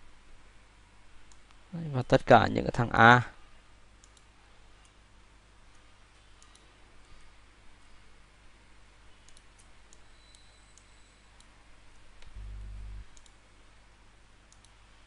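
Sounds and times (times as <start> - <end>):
computer mouse clicks: 4.0 - 5.0, 5.7 - 7.3, 9.2 - 12.4, 13.1 - 13.4, 14.5 - 14.8
low buzz: 12.2 - 13.3.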